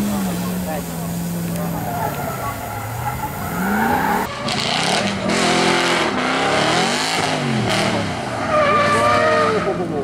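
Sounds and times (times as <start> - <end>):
car engines revving hard: 0.0 - 10.0
tyres squealing: 0.9 - 5.6.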